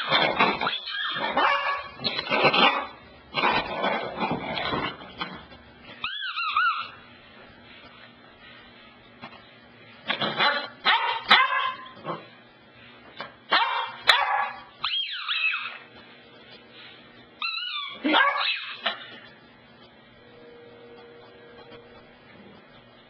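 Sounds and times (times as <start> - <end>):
puppy whining: 0.0 - 2.9, 5.9 - 7.0, 14.8 - 15.9, 17.4 - 19.1
puppy barking and yipping: 0.0 - 3.6, 6.0 - 7.0, 10.3 - 12.0, 13.5 - 15.9, 17.4 - 19.1.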